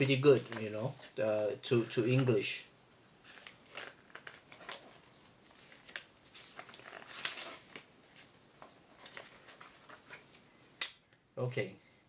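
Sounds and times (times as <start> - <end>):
paper pages rustling: 3.2 - 10.5.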